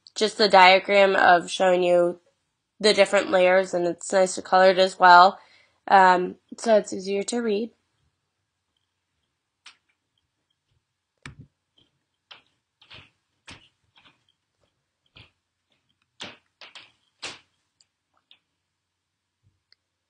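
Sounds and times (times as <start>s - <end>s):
laptop keyboard and touchpad clicks: 11.2s - 14.2s.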